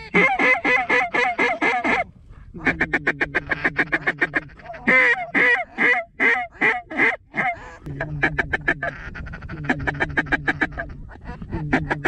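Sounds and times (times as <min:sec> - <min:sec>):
duck call quacking: 0:00.1 - 0:02.0, 0:02.6 - 0:07.6.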